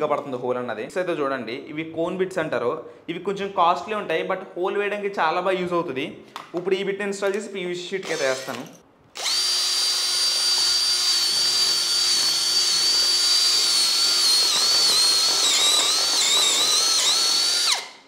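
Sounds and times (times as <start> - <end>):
cordless drill high motor whine: 9.2 - 18.0.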